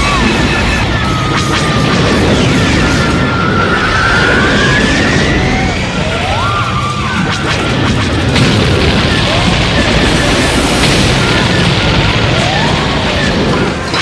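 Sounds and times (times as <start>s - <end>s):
action film music: 0.0s - 14.0s
crashes and booms: 0.0s - 14.0s
spaceship engine noise: 0.0s - 14.0s
whining tone gliding: 0.0s - 14.0s.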